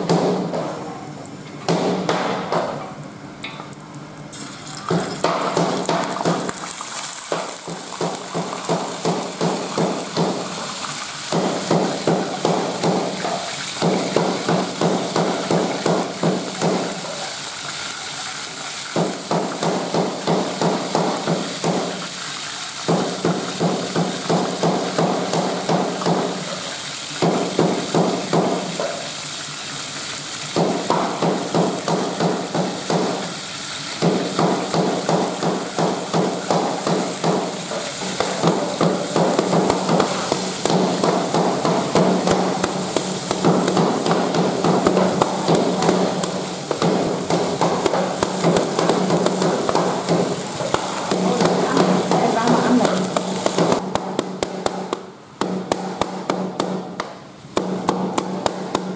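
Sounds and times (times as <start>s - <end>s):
oil sizzling in wok: 3.0s - 53.9s
cleaver chopping on cutting board: 34.0s - 58.9s.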